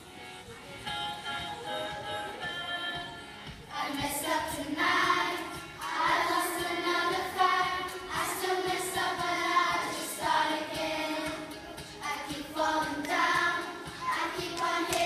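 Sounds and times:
children singing in unison: 3.7s - 15.0s.

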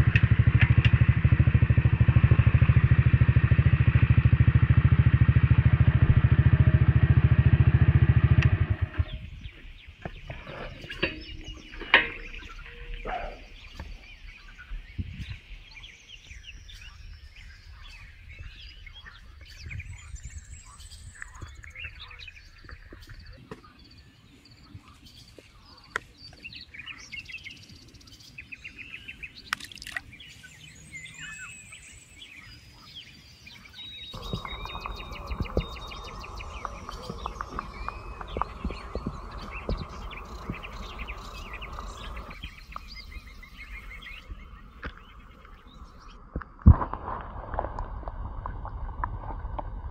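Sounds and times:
loud steady noise: 0.0s - 9.3s, 10.2s - 13.9s, 34.2s - 46.0s
motorcycle engine running: 0.0s - 14.4s, 34.1s - 46.2s
songbirds chirping and singing: 0.0s - 47.0s.

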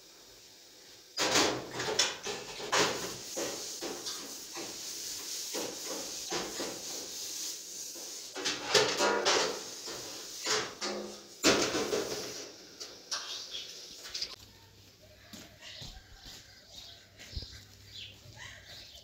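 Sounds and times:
dishes clinking and clattering: 1.2s - 4.8s, 8.3s - 13.4s
water running in a sink: 1.2s - 12.3s.

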